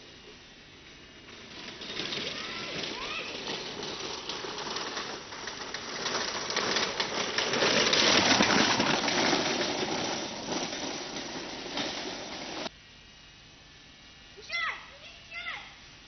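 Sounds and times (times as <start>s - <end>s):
kart rattling over dirt: 0.0s - 12.7s.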